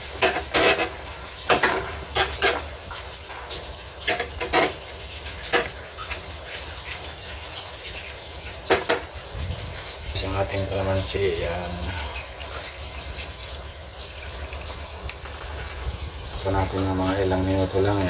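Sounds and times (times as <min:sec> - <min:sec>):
utensils and cookware clinking: 0:00.0 - 0:06.2, 0:08.6 - 0:09.2.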